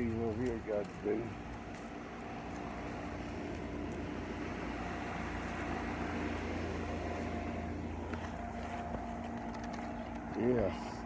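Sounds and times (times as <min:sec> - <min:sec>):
air conditioner unit humming: 0:00.0 - 0:11.0.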